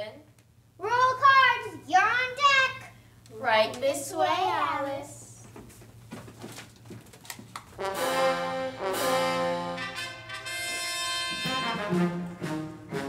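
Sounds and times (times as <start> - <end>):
brass fanfare: 7.8 - 13.0.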